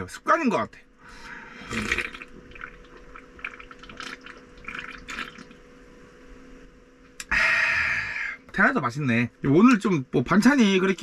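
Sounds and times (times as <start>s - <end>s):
man gulping and swallowing: 1.6s - 5.6s.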